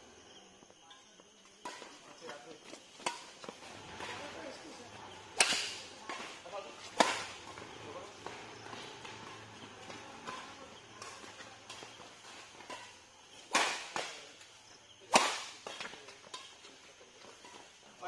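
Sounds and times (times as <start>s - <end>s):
racket hitting shuttlecock: 3.0s - 14.4s, 15.1s - 16.7s.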